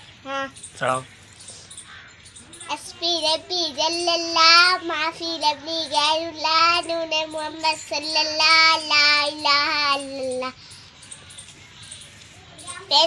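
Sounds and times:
girl singing: 2.6 - 10.7, 12.6 - 13.0.

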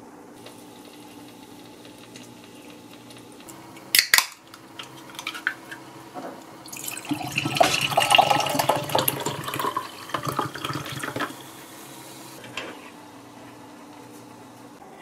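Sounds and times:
drink fizzing: 6.6 - 12.3.

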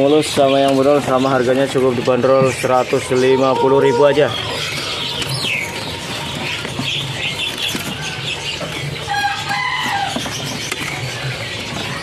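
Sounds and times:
songbirds chirping and whistling: 0.0 - 12.0
wings fluttering: 0.3 - 12.0.

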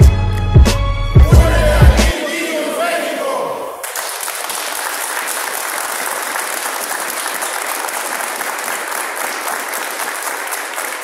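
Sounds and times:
people applauding: 3.8 - 11.0.

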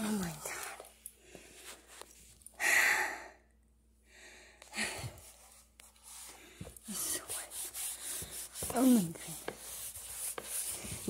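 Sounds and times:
cloth towel wiping floor: 4.8 - 11.0.

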